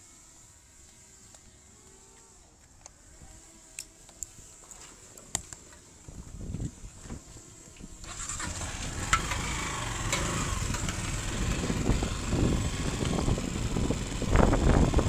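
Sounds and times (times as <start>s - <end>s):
wind noise on microphone: 6.1s - 15.0s
small motorcycle engine: 7.3s - 15.0s.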